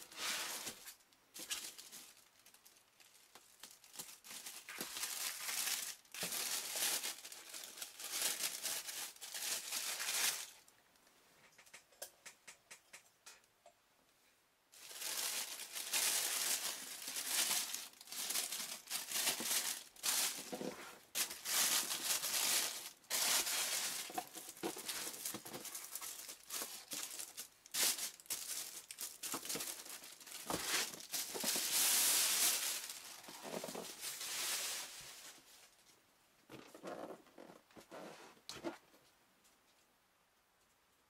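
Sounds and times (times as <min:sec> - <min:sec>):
plastic bag crinkling: 0:00.0 - 0:10.7, 0:14.8 - 0:35.8.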